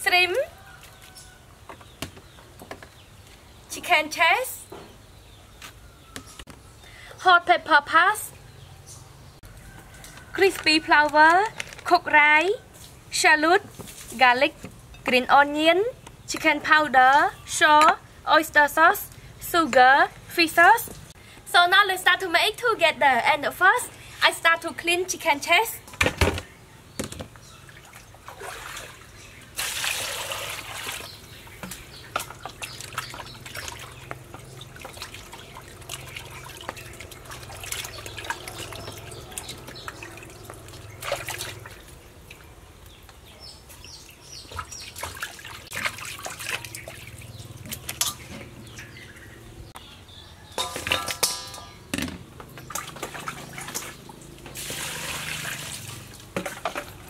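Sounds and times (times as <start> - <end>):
water splashing and sloshing: 26.0 - 43.1, 43.7 - 49.8, 50.6 - 57.0
water pouring into steel bowl: 54.6 - 56.2.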